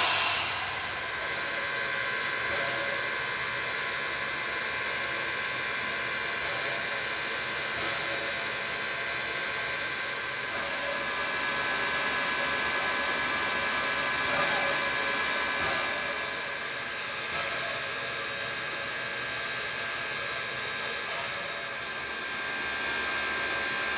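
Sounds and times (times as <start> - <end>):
high even whine: 0.0 - 2.6
steam locomotive hissing: 0.0 - 23.9.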